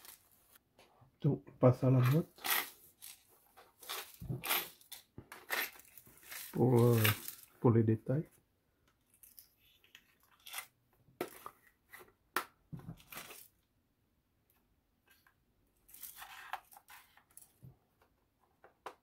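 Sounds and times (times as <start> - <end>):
tape tearing: 2.4 - 7.5.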